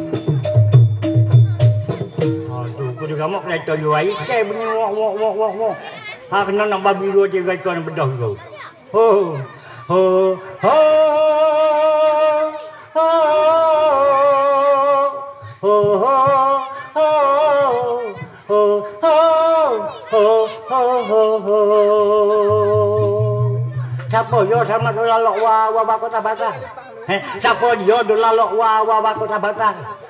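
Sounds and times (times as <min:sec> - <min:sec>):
person singing unaccompanied: 0:00.0 - 0:06.9, 0:08.8 - 0:30.0.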